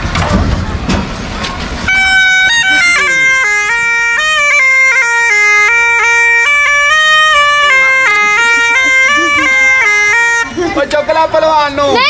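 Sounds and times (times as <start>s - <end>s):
reed wind instrument melody: 1.8s - 10.8s.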